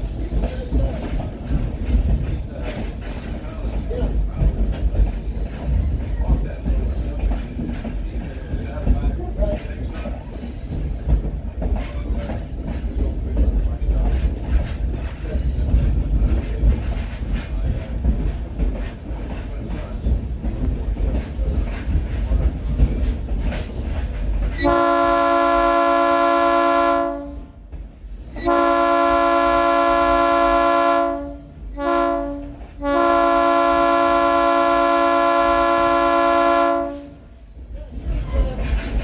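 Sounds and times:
train rumble and wheel clatter: 0.0s - 39.0s
train horn: 24.6s - 27.6s, 28.4s - 37.3s.

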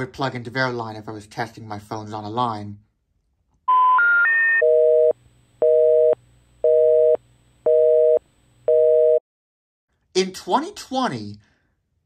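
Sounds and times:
rising telephone tones: 3.7s - 9.2s
telephone busy signal: 3.7s - 9.2s.

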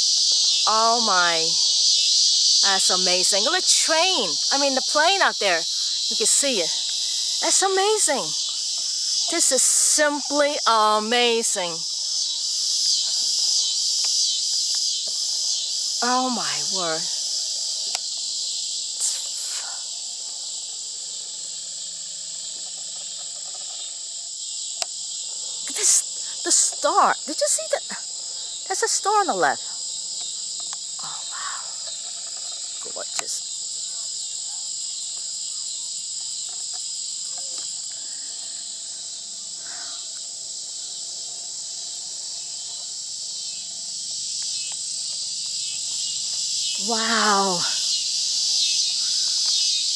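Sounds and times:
fast high insect pulsing: 0.0s - 49.9s
insects singing: 0.0s - 49.9s.

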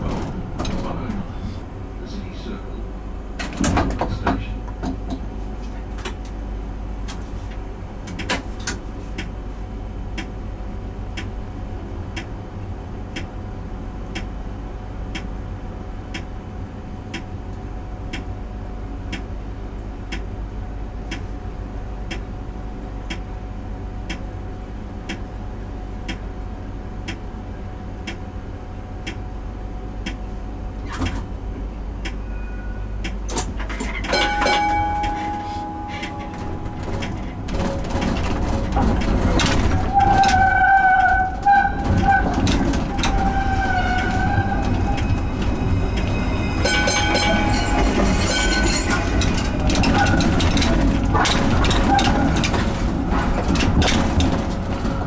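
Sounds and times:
traffic rumble: 0.0s - 55.0s
tram squeal: 32.1s - 37.4s, 39.4s - 53.3s.

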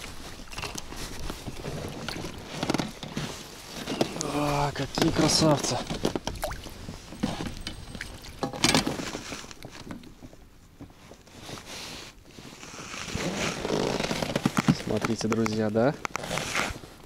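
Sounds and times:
knocks and rustles: 4.8s - 11.0s
water splashing and dripping: 6.2s - 6.8s.

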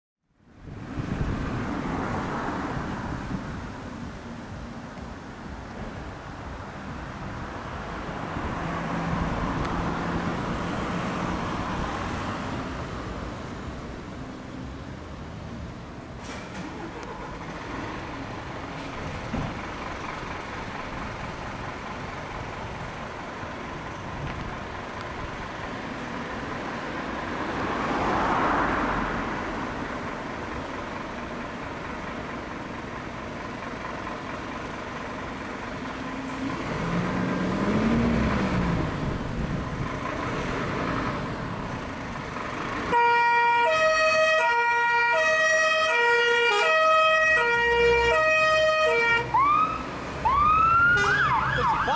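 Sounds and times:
road traffic: 0.2s - 51.9s
fire engine two-tone siren: 42.9s - 51.9s.

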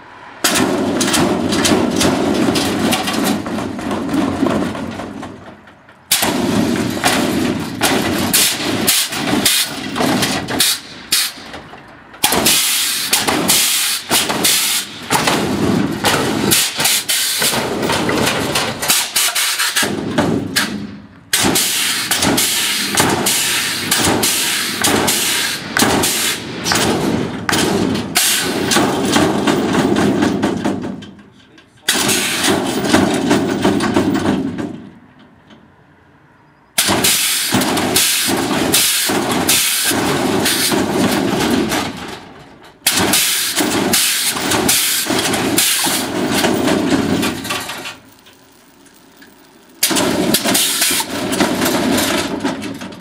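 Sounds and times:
sharp bangs and air blasts: 0.0s - 31.2s, 31.8s - 35.0s, 36.8s - 48.2s, 49.7s - 53.0s
loud hissing air: 12.4s - 15.1s, 21.6s - 26.8s.

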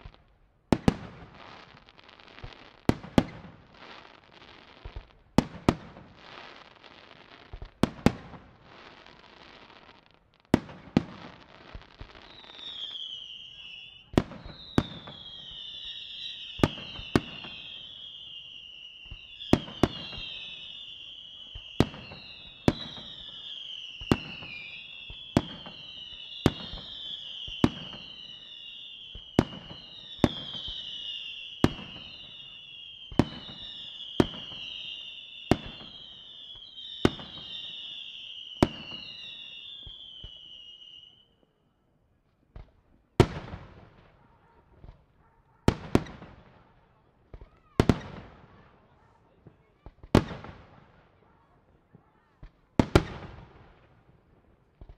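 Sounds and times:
descending firework whistles: 11.0s - 41.5s.

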